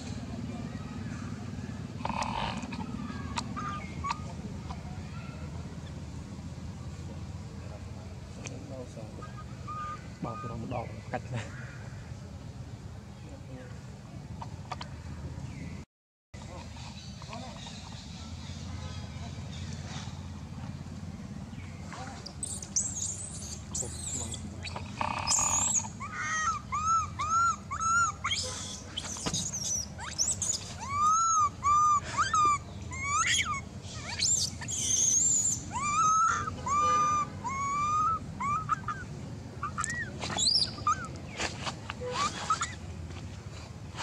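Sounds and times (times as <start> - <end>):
low background hum: 0.0 - 15.8, 16.4 - 44.0
baby monkey squealing: 2.0 - 4.4, 9.2 - 10.6, 22.4 - 41.1, 42.0 - 42.8.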